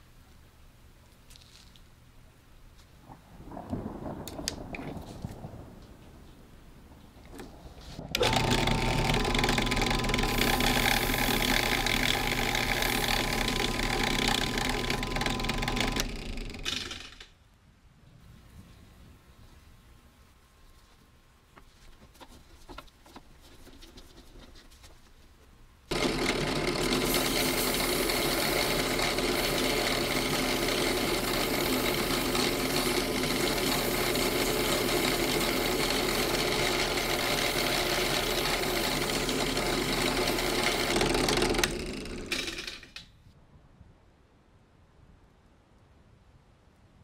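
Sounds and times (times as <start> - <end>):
drill press running: 8.1 - 17.2, 25.9 - 43.0
sandpaper sanding wood: 26.8 - 41.0.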